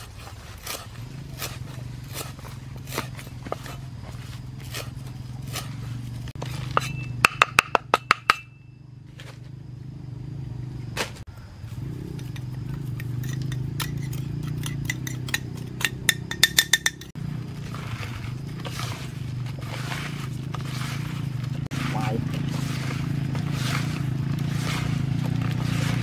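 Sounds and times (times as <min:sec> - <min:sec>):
cleaver chopping on wooden board: 0:00.6 - 0:03.9, 0:06.6 - 0:08.5.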